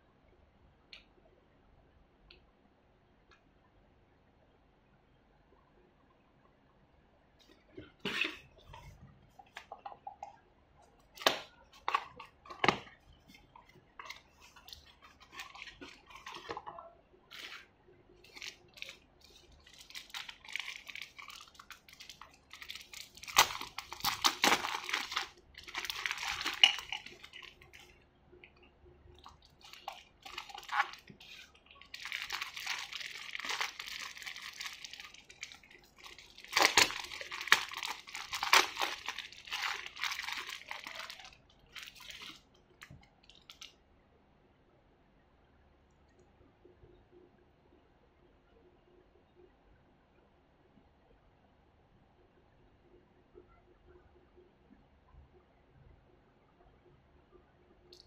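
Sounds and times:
plastic bag crinkling: 0:11.3 - 0:27.9, 0:29.2 - 0:42.5.

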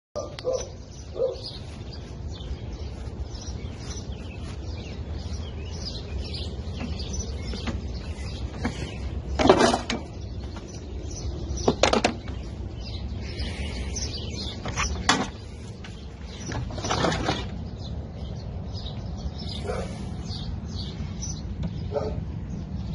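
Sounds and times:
birds chirping: 0:00.2 - 0:22.9
mower parts knocking: 0:06.6 - 0:10.8, 0:11.6 - 0:12.4, 0:14.6 - 0:17.6.

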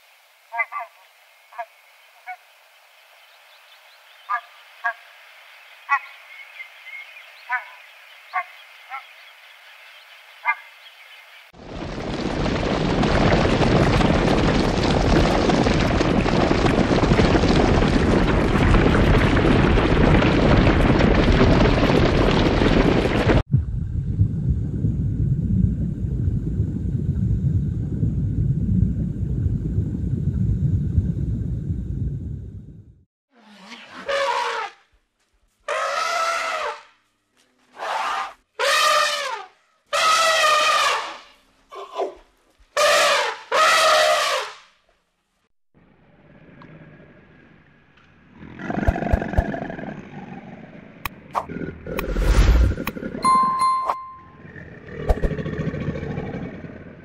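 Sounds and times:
deer hooves rumbling: 0:11.6 - 0:23.4
elephant trumpeting: 0:33.4 - 0:34.8, 0:35.7 - 0:36.9, 0:37.8 - 0:42.1, 0:42.8 - 0:44.5.

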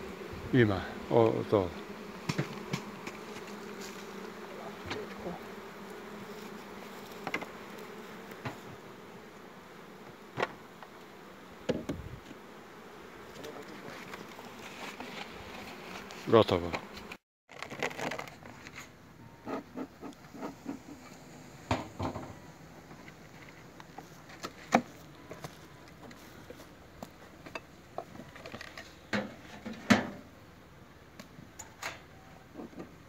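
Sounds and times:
beehive parts knocking and scraping: 0:01.2 - 0:08.9, 0:10.0 - 0:12.4, 0:13.2 - 0:30.2, 0:31.2 - 0:33.0.

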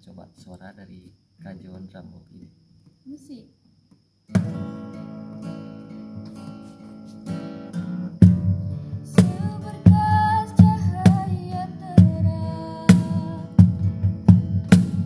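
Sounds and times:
acoustic guitar strumming: 0:04.3 - 0:15.0
box drum strokes and slaps: 0:04.4 - 0:04.6, 0:09.2 - 0:15.0
woman singing: 0:09.0 - 0:13.8.

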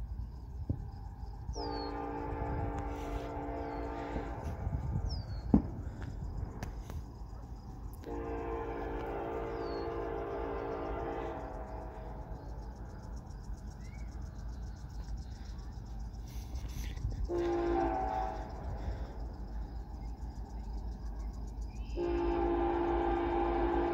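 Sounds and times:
low rumble: 0:00.0 - 0:22.0
locomotive air horn: 0:01.5 - 0:06.1, 0:08.0 - 0:12.6, 0:17.3 - 0:19.3, 0:21.8 - 0:23.9.

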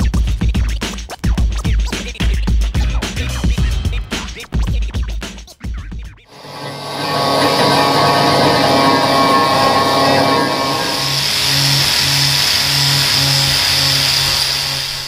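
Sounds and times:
angle grinder grinding metal: 0:06.3 - 0:14.6.

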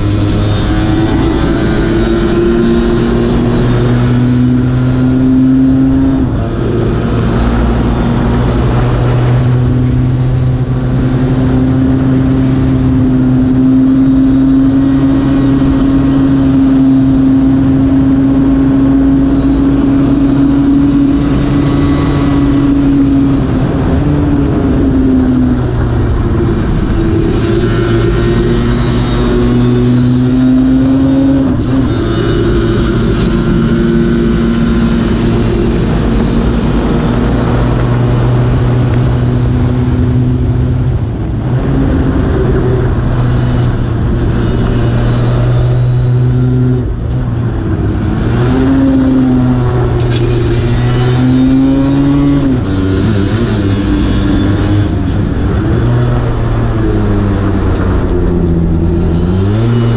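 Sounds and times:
scooter engine at high revs: 0:00.0 - 0:59.9
wind rush: 0:00.0 - 0:59.9.

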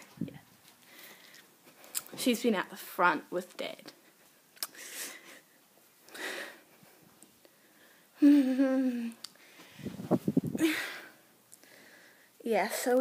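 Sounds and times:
low rustling bumps: 0:09.6 - 0:10.7.

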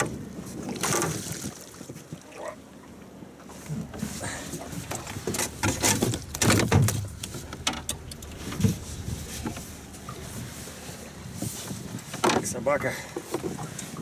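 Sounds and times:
knocks and clatter in a boat: 0:00.0 - 0:14.0
low steady rumble: 0:02.5 - 0:13.1.

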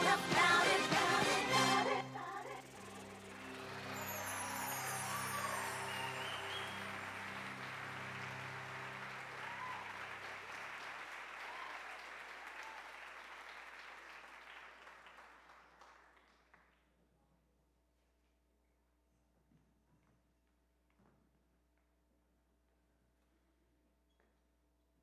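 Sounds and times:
audience applauding: 0:02.6 - 0:16.7.

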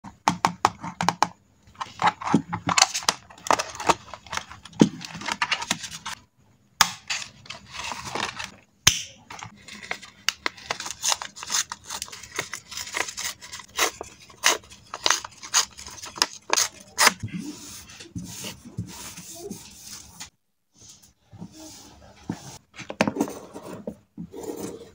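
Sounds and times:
paper rustling: 0:07.1 - 0:08.6, 0:09.4 - 0:20.3.

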